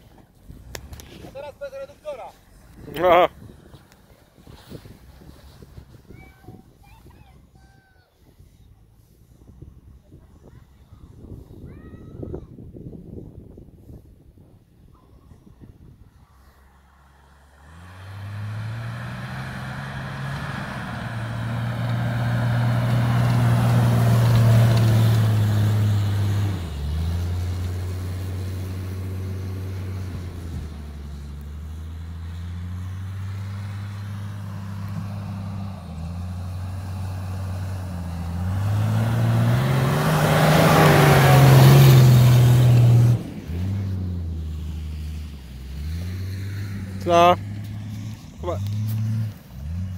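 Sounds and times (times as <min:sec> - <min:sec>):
car engine revving: 0:17.2 - 0:49.9.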